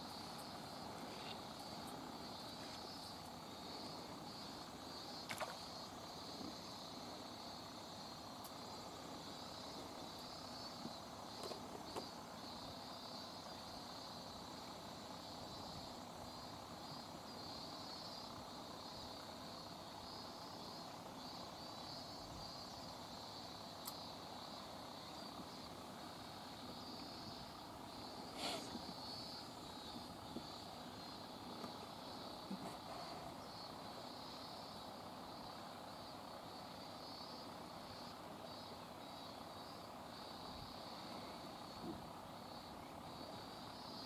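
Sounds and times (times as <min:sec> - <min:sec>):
cicadas chorus: 0:00.0 - 0:44.0
wind: 0:00.0 - 0:44.0
water: 0:05.2 - 0:05.8.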